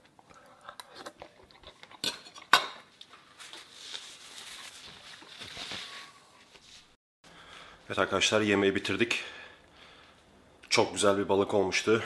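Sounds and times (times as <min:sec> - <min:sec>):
cutlery scraping a ceramic bowl: 0:00.9 - 0:02.9.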